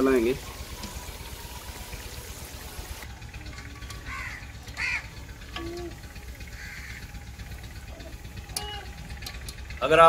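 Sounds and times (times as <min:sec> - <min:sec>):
crow cawing: 0:04.0 - 0:05.2, 0:06.4 - 0:07.2.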